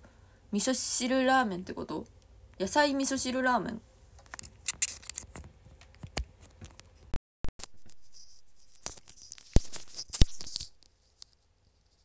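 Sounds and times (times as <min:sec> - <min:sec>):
earphones clicking and rubbing: 0:04.2 - 0:11.4.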